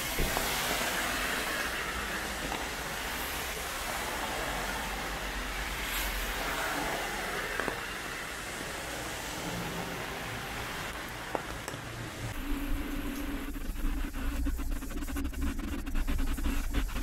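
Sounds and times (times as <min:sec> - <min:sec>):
heavy rain on a street: 0:00.0 - 0:07.4, 0:08.1 - 0:11.4
car tyres swishing on wet road: 0:00.0 - 0:13.4.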